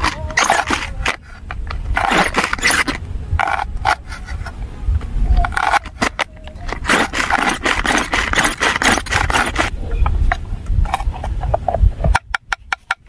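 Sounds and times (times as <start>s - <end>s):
vegetable chopper rattling: 0.0s - 1.2s, 1.9s - 3.7s, 5.5s - 9.7s.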